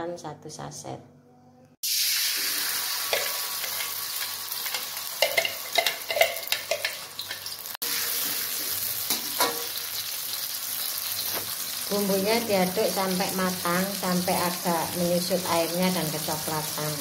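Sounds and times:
spice paste sizzling in hot oil: 0:01.8 - 0:17.0
metal spatula scraping wok: 0:03.1 - 0:09.8.

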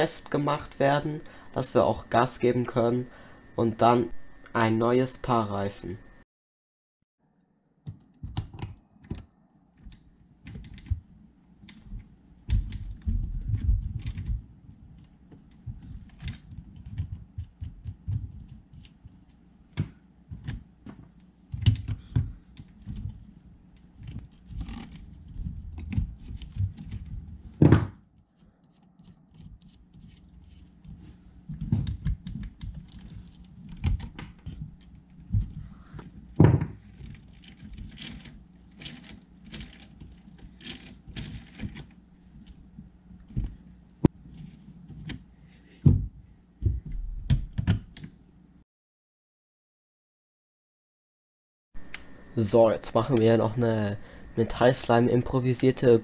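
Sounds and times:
thumps on wooden workbench: 0:27.6 - 0:28.0, 0:36.4 - 0:36.8.

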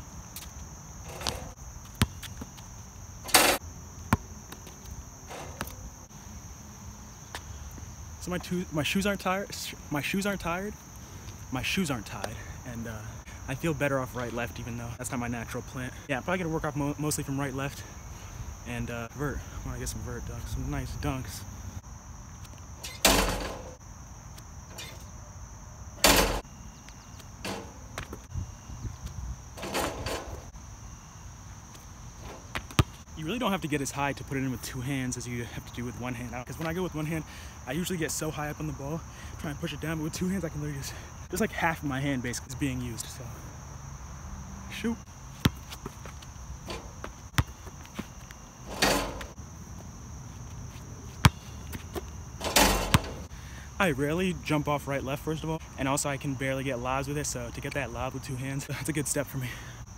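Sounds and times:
basketball bouncing on court: 0:01.2 - 0:02.5, 0:32.3 - 0:33.0, 0:45.4 - 0:48.1, 0:52.7 - 0:53.2
basketball thud: 0:05.3 - 0:05.8, 0:27.4 - 0:28.3, 0:29.6 - 0:30.5, 0:32.2 - 0:33.0, 0:45.4 - 0:48.1, 0:51.2 - 0:53.3.

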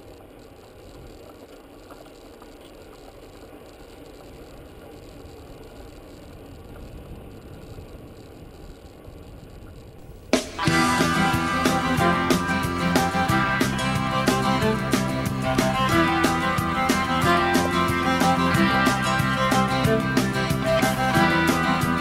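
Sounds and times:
faint clicks: 0:00.0 - 0:10.1
wind: 0:00.0 - 0:22.0.

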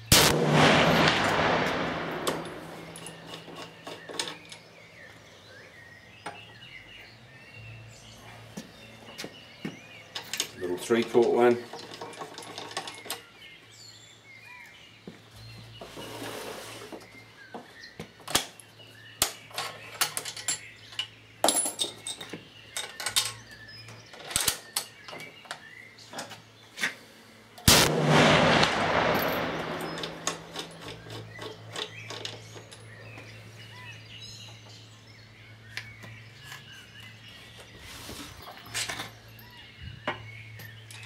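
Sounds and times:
rifle shot: 0:00.1 - 0:03.4, 0:27.7 - 0:30.9.

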